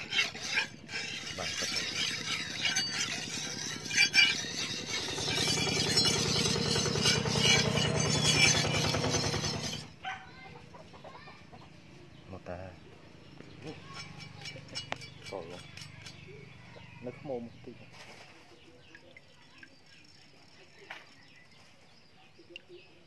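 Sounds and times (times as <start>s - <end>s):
knife rasping on whetstone: 0.0s - 9.9s, 13.8s - 16.5s.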